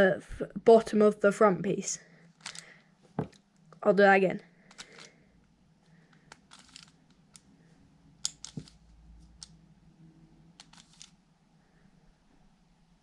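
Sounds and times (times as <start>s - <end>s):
puzzle cube clicking: 2.4s - 2.7s, 4.7s - 5.2s, 6.1s - 7.5s, 8.2s - 9.6s, 10.6s - 11.2s.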